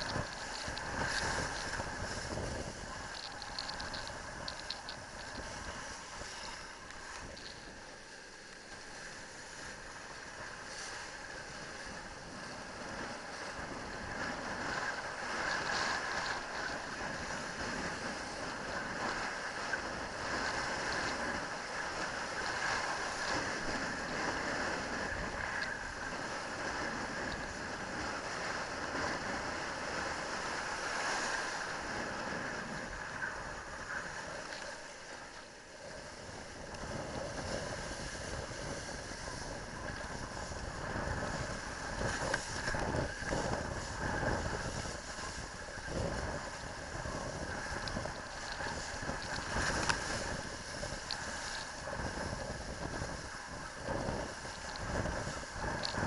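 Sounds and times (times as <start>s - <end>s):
wind buffeting microphone: 0.0s - 7.7s, 35.8s - 56.0s
kiteboard rushing through surf: 0.0s - 56.0s.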